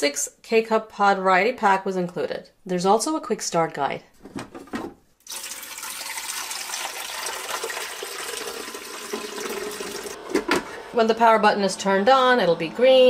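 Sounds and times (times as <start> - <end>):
water pouring into plastic reservoir: 5.2 - 10.2.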